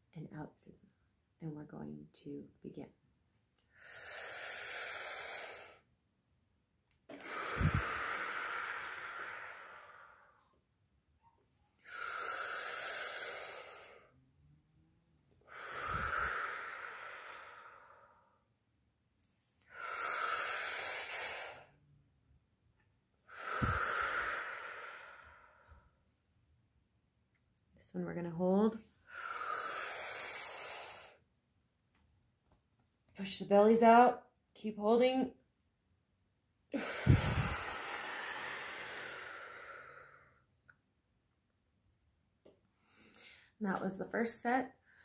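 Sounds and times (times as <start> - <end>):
woman breathing deeply through mouth: 3.7 - 5.9, 7.1 - 10.6, 11.7 - 14.2, 15.4 - 18.5, 19.4 - 21.8, 23.2 - 26.1, 28.8 - 31.3, 36.7 - 40.6, 42.7 - 43.6.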